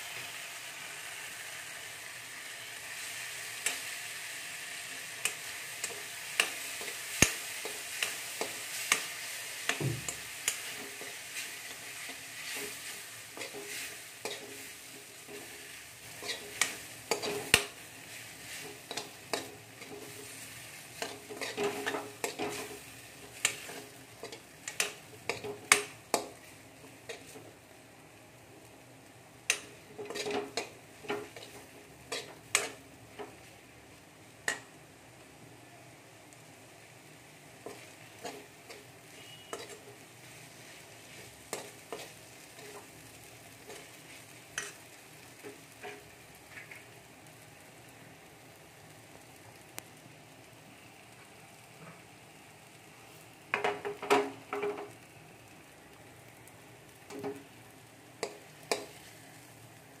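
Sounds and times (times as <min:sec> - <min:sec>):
low sizzle: 0:00.0 - 1:00.0
spatula scraping metal pan: 0:16.2 - 0:17.6, 0:21.0 - 0:22.8, 0:30.0 - 0:32.8, 0:37.7 - 0:39.9.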